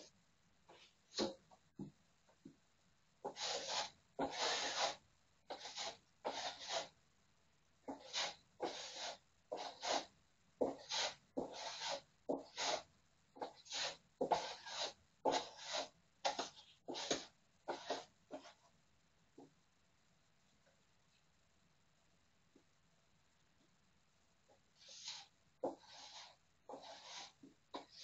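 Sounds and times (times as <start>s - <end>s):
hand tool rasping on plaster wall: 3.2s - 6.9s, 7.9s - 18.1s, 24.8s - 28.0s.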